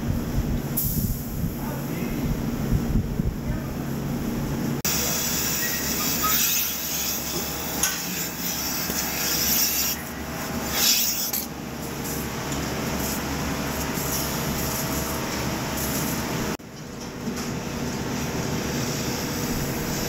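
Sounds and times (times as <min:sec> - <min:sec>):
vacuum machinery running: 0:01.4 - 0:10.7, 0:11.5 - 0:20.0
hissing air surges: 0:04.9 - 0:11.4.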